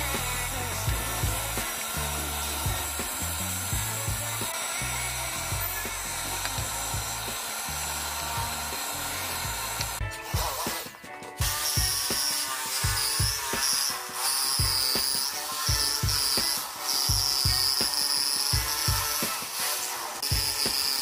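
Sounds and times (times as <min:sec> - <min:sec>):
background music with bass line: 0:00.0 - 0:21.0
drill press boring into wood: 0:00.0 - 0:21.0.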